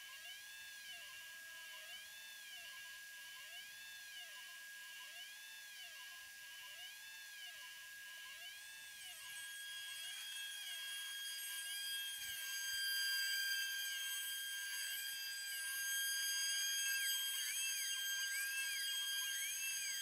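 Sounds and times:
stepper motors tones: 8.4 - 20.0
spindle high whine: 9.0 - 20.0.

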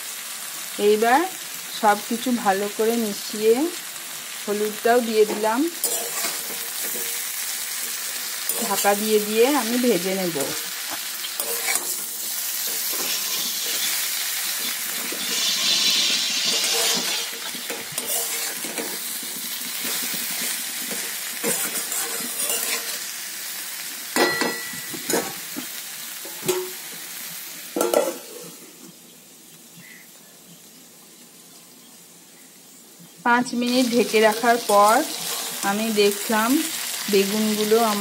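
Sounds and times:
vegetables sizzling in a pan: 0.0 - 38.0
metal spatula scraping pan: 5.3 - 9.0, 10.5 - 23.1, 33.9 - 35.6
metal lid clanking: 24.2 - 25.4, 26.3 - 26.8, 27.8 - 28.4.

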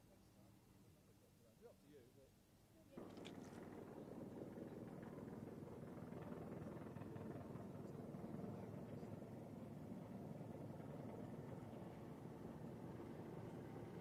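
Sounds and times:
helicopter flying overhead: 3.0 - 14.0.

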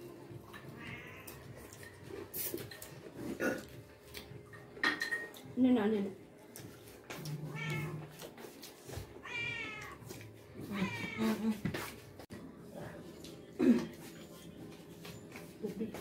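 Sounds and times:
cat meowing: 0.6 - 1.6, 7.4 - 8.2, 9.2 - 11.4.

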